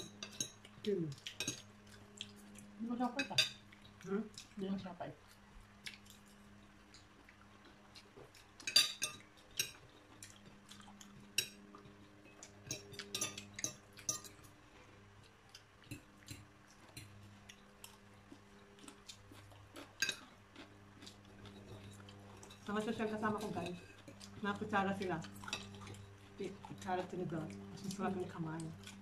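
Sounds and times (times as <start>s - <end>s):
cutlery clinking on plates: 0.0s - 0.7s, 1.4s - 1.6s, 8.6s - 9.9s, 11.3s - 14.5s, 20.0s - 20.2s
faint low hum: 0.0s - 29.0s.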